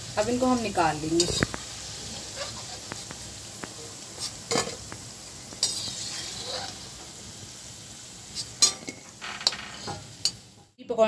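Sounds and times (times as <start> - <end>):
food sizzling in hot oil: 0.0 - 10.8
slotted spoon scraping a wok: 1.1 - 1.6, 2.2 - 3.1, 5.6 - 6.9, 8.3 - 10.4.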